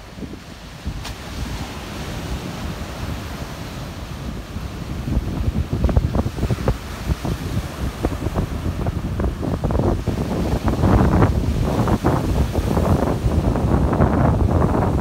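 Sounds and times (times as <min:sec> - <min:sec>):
sea surf breaking on shore: 0:00.0 - 0:15.0
wind buffeting microphone: 0:00.0 - 0:15.0.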